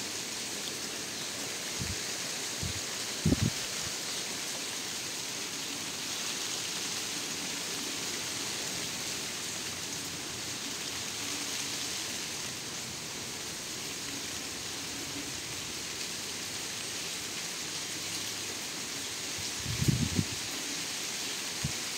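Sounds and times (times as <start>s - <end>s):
steady rain on grass and plants: 0.0s - 21.9s.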